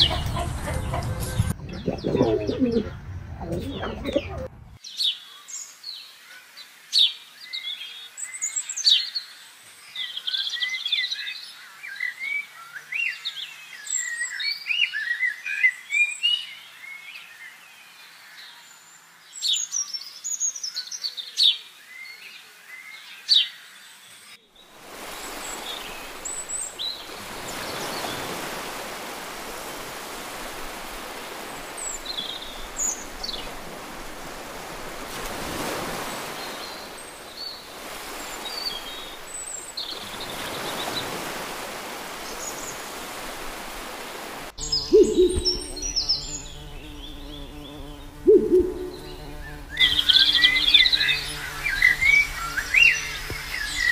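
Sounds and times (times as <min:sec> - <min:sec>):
small birds chirping and singing: 0:44.6 - 0:53.9.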